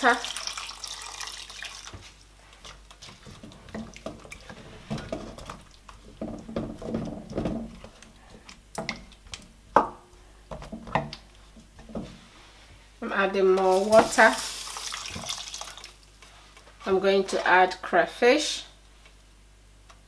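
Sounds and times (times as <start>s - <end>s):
water pouring into pot: 0.0s - 2.0s, 13.7s - 16.0s
wooden spoon stirring wet mixture: 0.0s - 17.5s.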